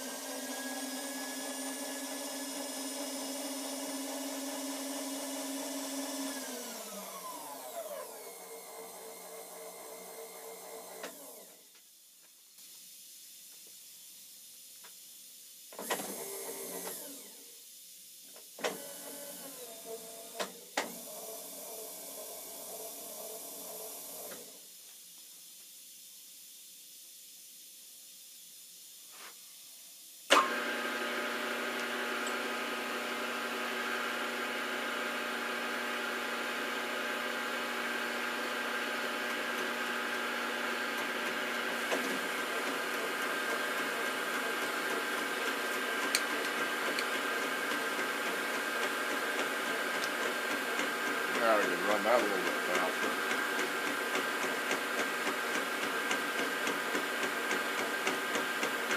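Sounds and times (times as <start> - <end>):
motor running: 37.9 - 54.8.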